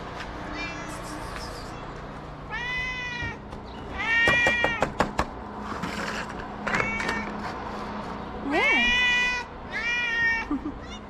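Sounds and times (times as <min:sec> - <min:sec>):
cat meowing: 0:00.5 - 0:04.8, 0:06.7 - 0:07.4, 0:08.5 - 0:11.0.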